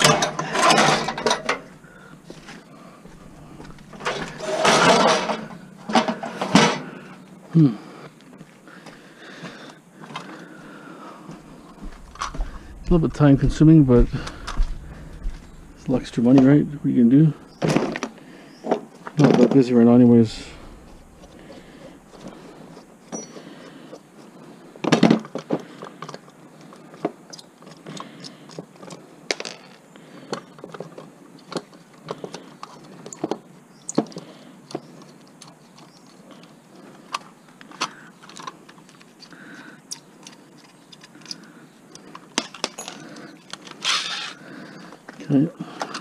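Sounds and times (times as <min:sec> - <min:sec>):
metal scrap clinking: 0:00.0 - 0:01.7, 0:03.9 - 0:06.9.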